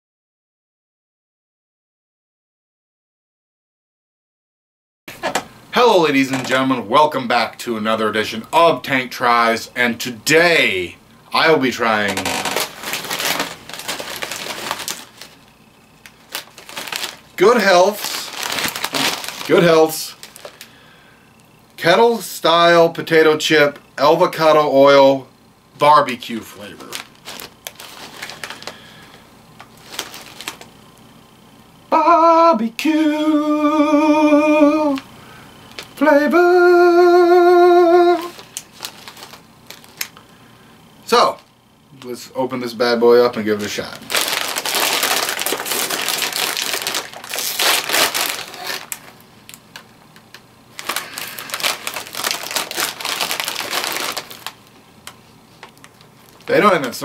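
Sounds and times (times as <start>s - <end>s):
chip bag rustling: 11.4s - 20.8s, 25.9s - 30.8s, 35.7s - 40.3s, 43.5s - 49.8s, 50.7s - 54.7s
man singing long held notes: 31.9s - 35.1s, 36.0s - 38.4s.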